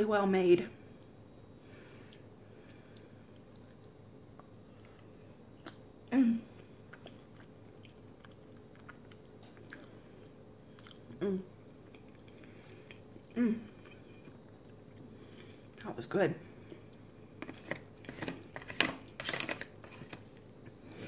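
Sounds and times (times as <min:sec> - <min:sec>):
mouth chewing food: 0:06.5 - 0:15.9.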